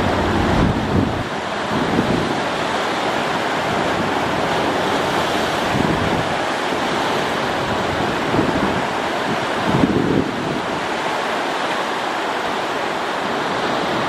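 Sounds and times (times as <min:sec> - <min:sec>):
wind noise on microphone: 0:00.0 - 0:11.0
choppy water rushing: 0:00.0 - 0:14.0.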